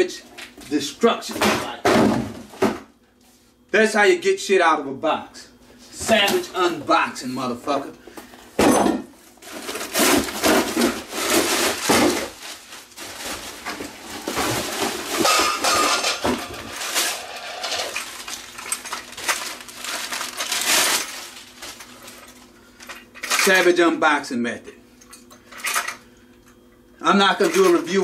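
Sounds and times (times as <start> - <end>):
packing wrap rustling and crinkling: 9.3 - 15.2, 16.6 - 22.5.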